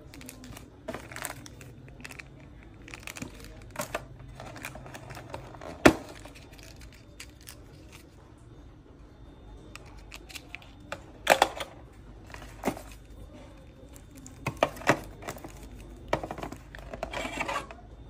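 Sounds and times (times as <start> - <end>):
plastic bags crinkling: 0.0 - 8.2.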